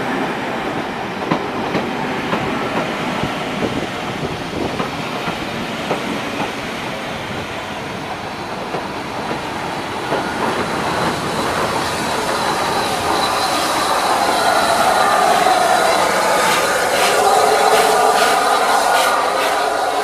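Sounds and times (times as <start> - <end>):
train rolling past: 0.0 - 20.0
high steady squeal: 9.6 - 20.0.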